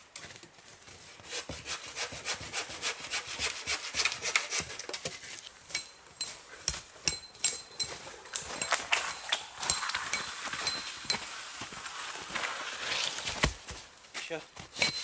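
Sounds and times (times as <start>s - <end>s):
hand saw cutting wood: 1.2s - 5.1s.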